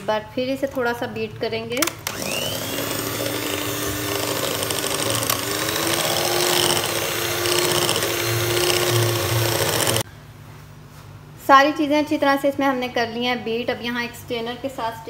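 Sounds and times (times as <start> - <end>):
electric hand mixer whirring: 2.0 - 10.0.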